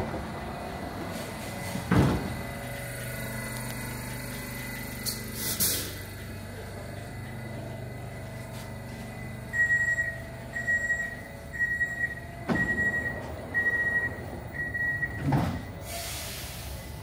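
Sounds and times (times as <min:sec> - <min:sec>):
sliding doors banging shut: 0:01.6 - 0:02.5, 0:12.4 - 0:13.9, 0:14.9 - 0:16.0
high warning beeps: 0:09.2 - 0:15.8.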